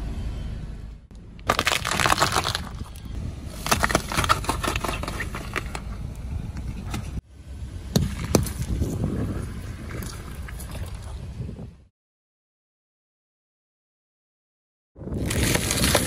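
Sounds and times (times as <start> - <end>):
tyre crushing apples: 1.4 - 3.0, 3.6 - 5.8
oranges cracking and crushing: 1.4 - 5.9, 15.1 - 16.0.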